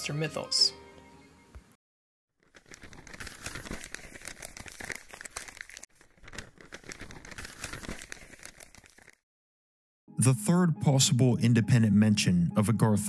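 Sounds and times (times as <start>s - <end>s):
paper crinkling and rustling: 2.4s - 9.2s.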